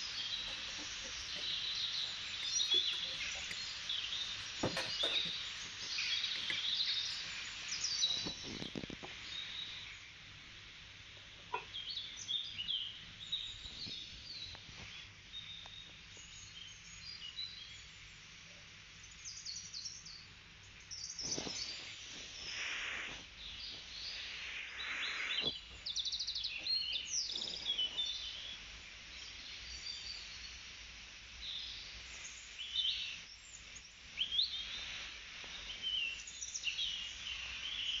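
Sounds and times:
birds chirping and trilling: 0.0 - 9.9.

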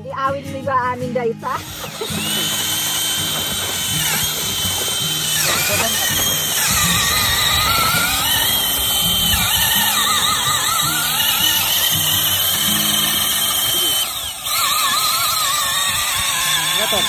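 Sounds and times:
power drill boring through ice: 1.4 - 17.0.

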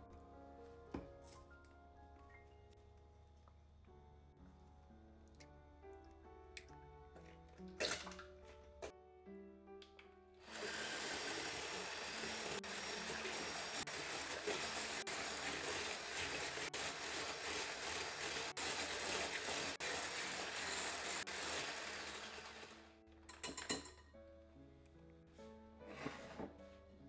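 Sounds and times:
faint background music: 0.0 - 10.4.

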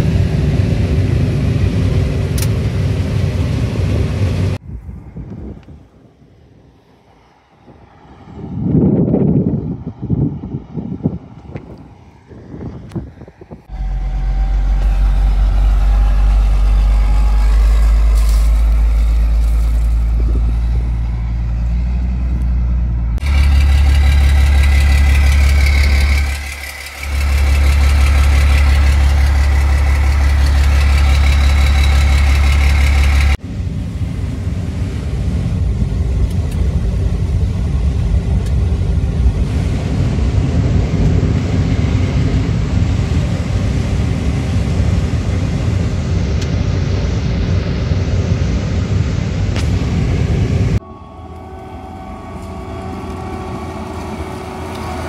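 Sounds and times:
harvest machinery engine hum: 0.0 - 55.0
machine whine: 13.5 - 55.0.

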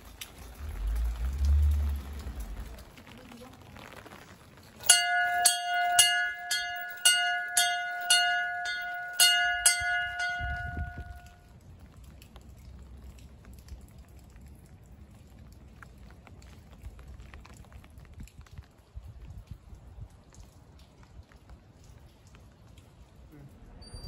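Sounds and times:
low rumble on microphone: 0.0 - 5.2, 8.3 - 11.4
wall bell ringing: 4.8 - 11.4.

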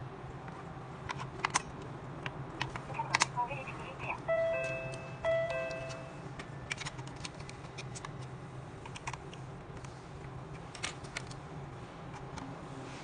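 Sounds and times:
low steady hum: 0.0 - 7.3.

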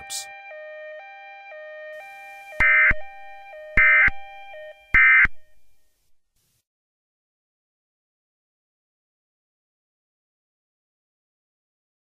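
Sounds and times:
two-pitch electronic tones: 2.0 - 5.8.

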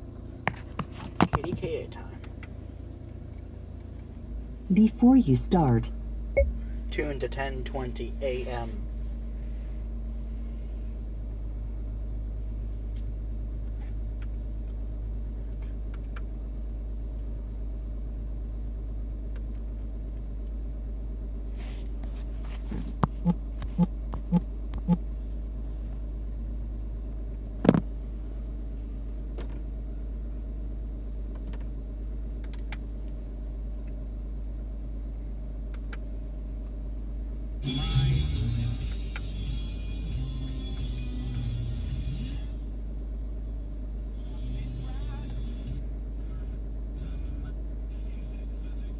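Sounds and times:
steady low rumble: 0.0 - 48.9
short low blips: 6.4 - 6.8.

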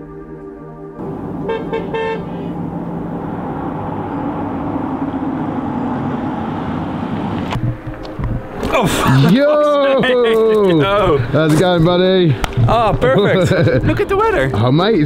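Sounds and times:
van horn toots: 1.0 - 5.0
van engine and tyres: 1.0 - 9.8.

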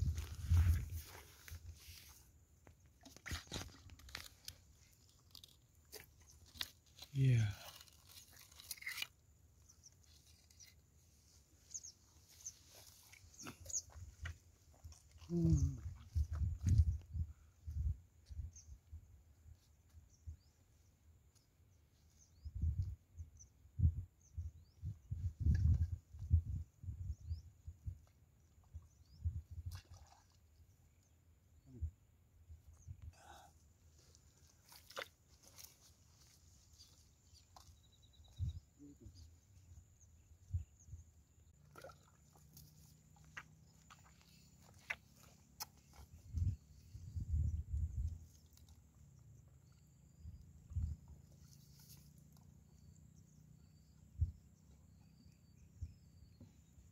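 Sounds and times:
dry mud and grass rustling: 0.0 - 23.3, 32.4 - 56.9.

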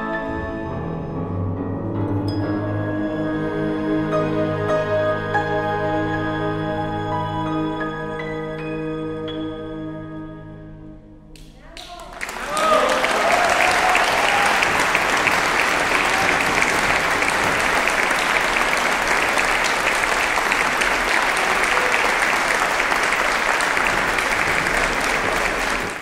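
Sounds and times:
audience applauding: 11.4 - 26.0.

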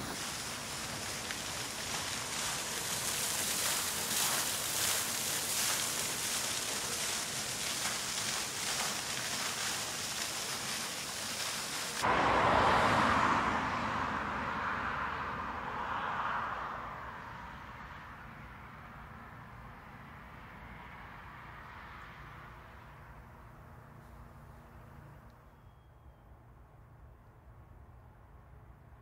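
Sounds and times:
fountain water splashing: 0.0 - 14.4
car passing by: 0.0 - 25.3.

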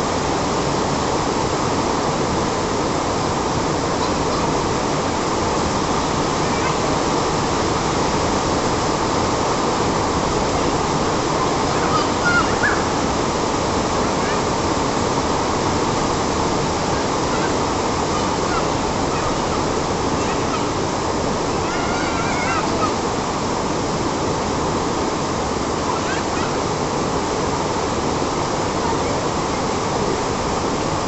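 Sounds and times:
heavy rain: 0.0 - 31.0
children shouting: 11.4 - 12.8, 21.6 - 23.0.

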